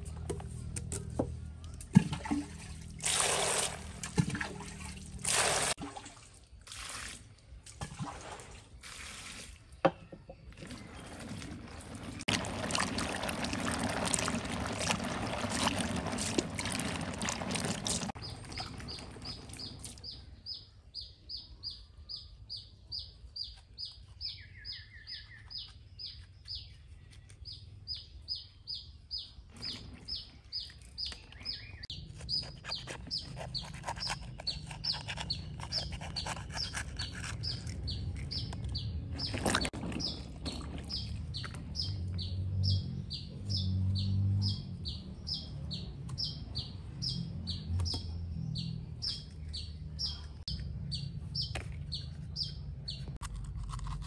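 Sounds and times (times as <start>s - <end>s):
water splashing into a bowl: 1.8s - 9.7s, 10.6s - 20.0s
hands swishing chilies in water: 10.7s - 20.0s
bird chirping: 18.2s - 53.2s.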